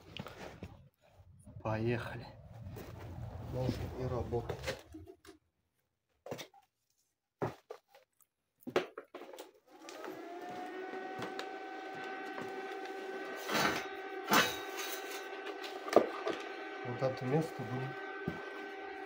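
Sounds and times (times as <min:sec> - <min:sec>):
welding machine humming with whine: 0:09.8 - 0:19.0.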